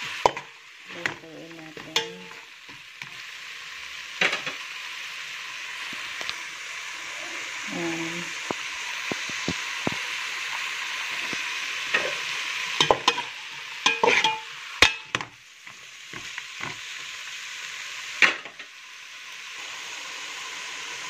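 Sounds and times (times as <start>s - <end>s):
food sizzling in a pot: 0.0s - 21.0s
metal spoon scraping a pot: 12.8s - 15.1s.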